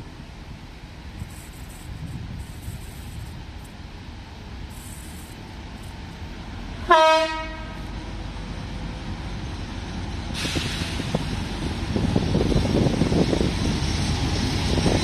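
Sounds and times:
approaching train rushing: 0:00.0 - 0:15.0
train horn blast: 0:06.8 - 0:08.0.

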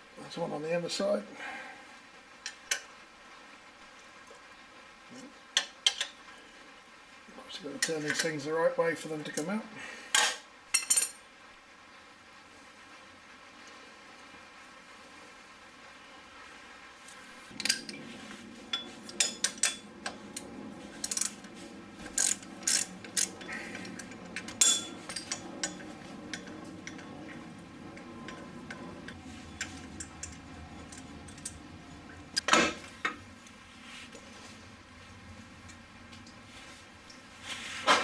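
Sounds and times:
hand tools clinking on metal: 0:22.1 - 0:32.5.

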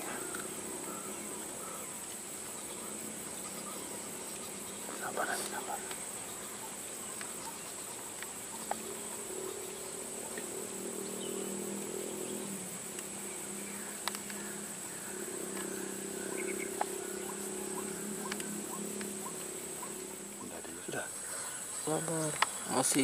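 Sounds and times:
low droning hum: 0:00.0 - 0:22.6
crickets and insects chirping: 0:00.0 - 0:23.0.

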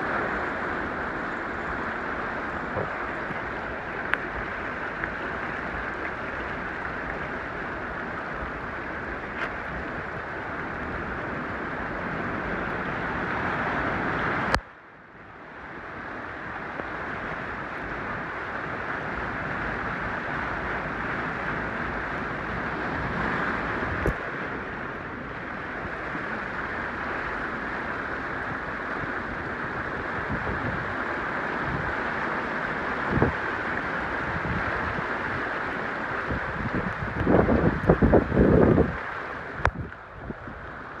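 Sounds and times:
wind buffeting microphone: 0:00.0 - 0:14.6, 0:17.1 - 0:41.0
heavy rain hiss: 0:00.0 - 0:41.0.

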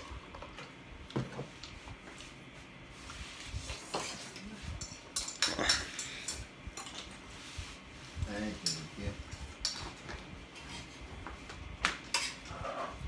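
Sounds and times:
utensils clinking against a dish: 0:03.9 - 0:07.3, 0:08.5 - 0:10.2, 0:12.1 - 0:12.8.

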